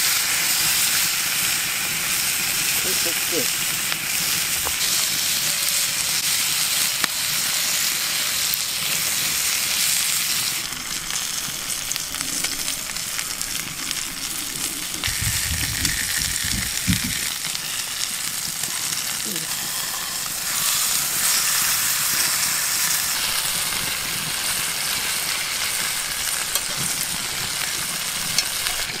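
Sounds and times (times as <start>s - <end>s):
steak sizzling in a skillet: 0.0s - 29.0s
low bumps: 14.9s - 17.4s.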